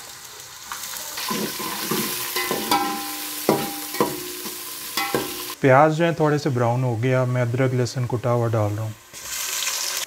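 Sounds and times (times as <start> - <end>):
onions sizzling in oil: 0.0 - 5.6, 7.2 - 10.0
spoon scraping a pot: 1.3 - 5.6.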